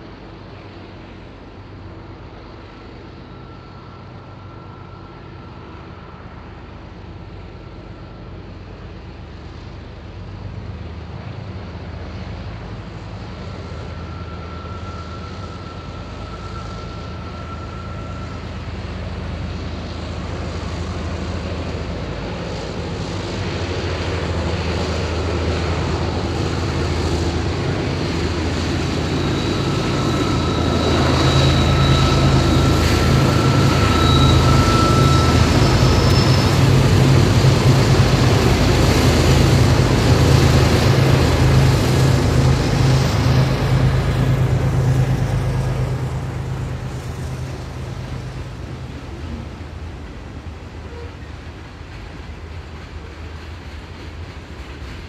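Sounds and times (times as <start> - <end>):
locomotive engines throbbing: 0.0 - 55.0
thin high whine: 13.0 - 49.9.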